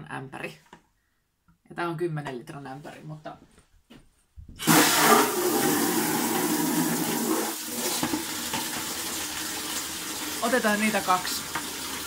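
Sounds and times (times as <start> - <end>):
tap water filling plastic bucket: 4.6 - 12.0.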